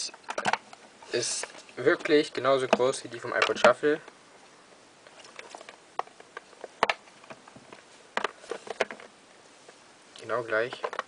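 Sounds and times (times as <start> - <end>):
plastic boxes clicking and tapping: 0.2 - 3.8, 5.4 - 9.1, 10.7 - 11.0.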